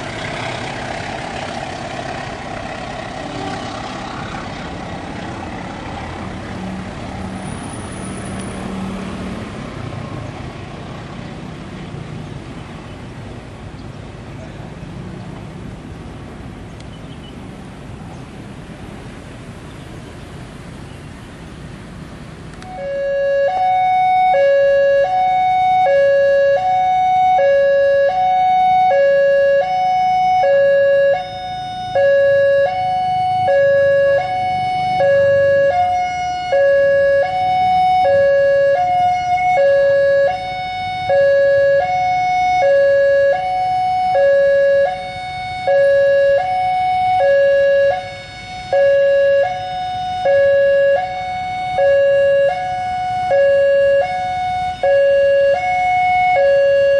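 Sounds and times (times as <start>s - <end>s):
level crossing two-tone alarm: 22.7s - 56.9s.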